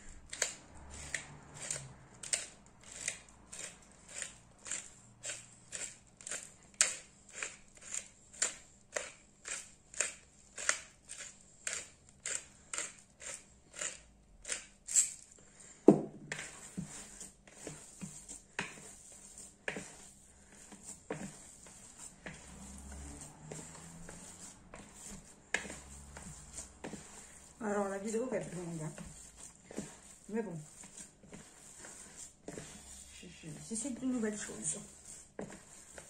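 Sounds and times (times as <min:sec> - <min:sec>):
pepper mill grinding: 0:02.3 - 0:15.2.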